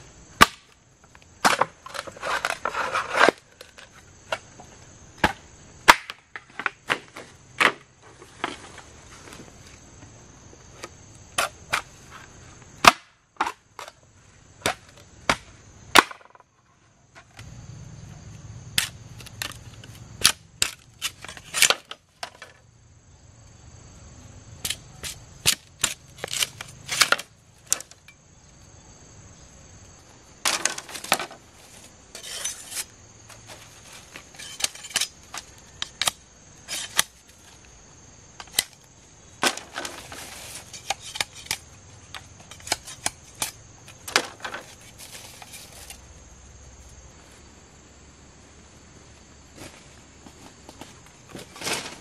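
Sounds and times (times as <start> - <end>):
tool chopping wood: 5.2 - 7.8, 12.8 - 13.6, 14.6 - 16.4.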